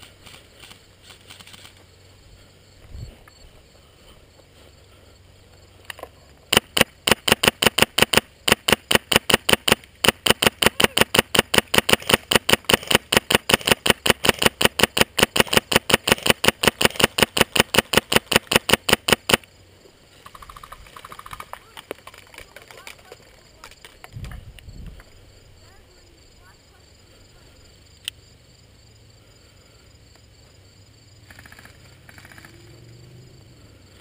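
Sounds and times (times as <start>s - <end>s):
airsoft rifle shots: 6.5s - 19.5s.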